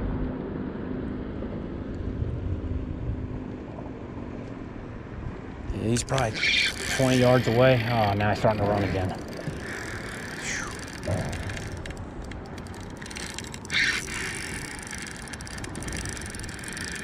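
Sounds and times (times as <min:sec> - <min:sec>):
fishing reel drag clicking: 0:06.0 - 0:17.0.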